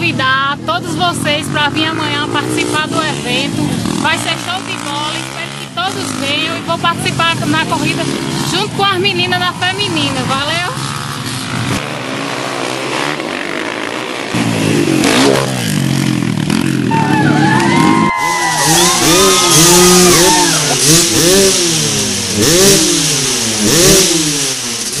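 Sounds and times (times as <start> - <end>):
dirt bike engines revving: 0.0 - 25.0.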